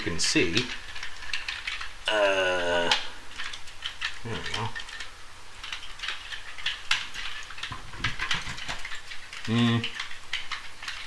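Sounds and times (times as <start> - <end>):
plastic toy parts clicking: 0.0 - 11.0
man humming: 2.0 - 3.2, 9.5 - 9.9.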